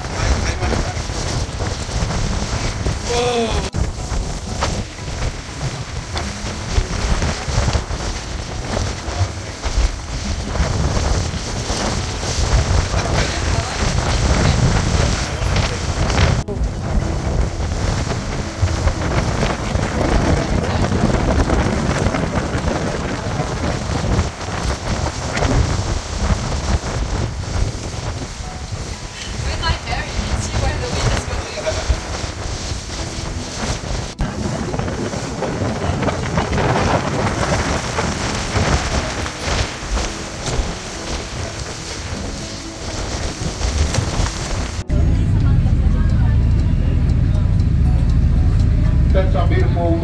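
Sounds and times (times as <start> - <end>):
wind buffeting microphone: 0.0 - 50.0.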